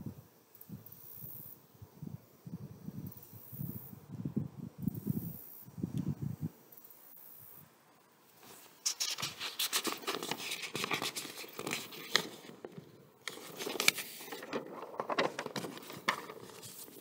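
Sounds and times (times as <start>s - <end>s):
paper rustling and crinkling: 8.4s - 17.0s.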